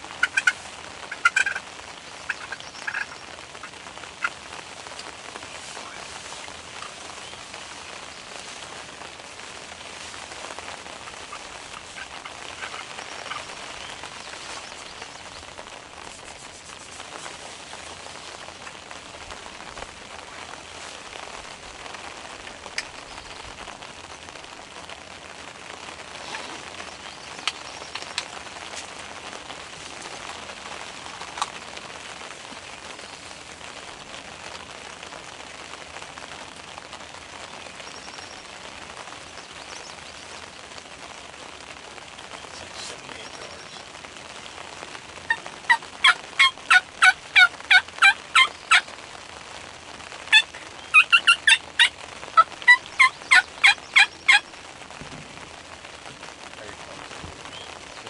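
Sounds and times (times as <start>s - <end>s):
faint rain hiss: 0.0s - 58.0s
wild turkey calling: 0.1s - 18.7s, 45.3s - 49.0s, 50.3s - 54.6s
water drips ticking: 6.3s - 35.9s.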